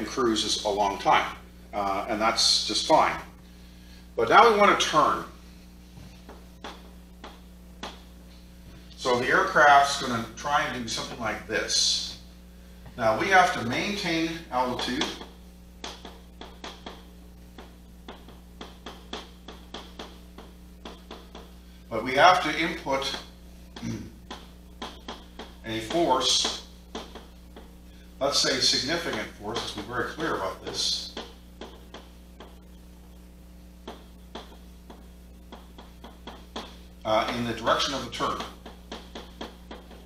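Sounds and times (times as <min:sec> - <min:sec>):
steady low hum: 0:00.0 - 0:40.0
chalk tapping and scraping: 0:14.7 - 0:21.6, 0:23.0 - 0:27.7, 0:28.6 - 0:32.6, 0:33.8 - 0:40.0.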